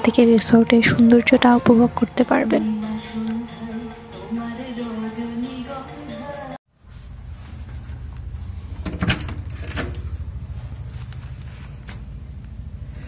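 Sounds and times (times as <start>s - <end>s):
steady low rumble: 6.9s - 13.0s.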